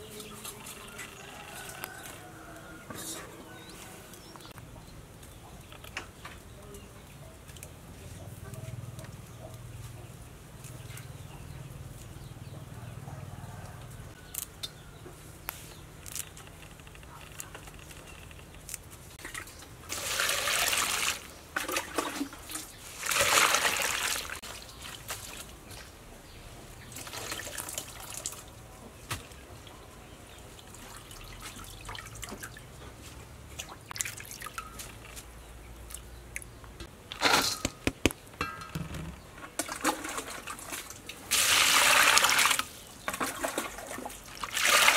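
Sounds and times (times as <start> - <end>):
water splashing in a metal bowl: 19.2 - 25.5, 26.9 - 28.5, 30.6 - 32.6, 33.6 - 35.2, 39.5 - 44.9
water dripping: 33.5 - 35.2.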